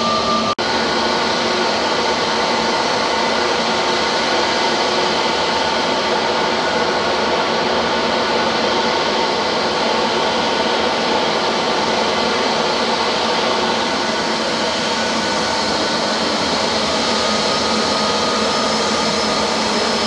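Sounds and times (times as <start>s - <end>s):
jet engine roar: 0.0s - 20.0s.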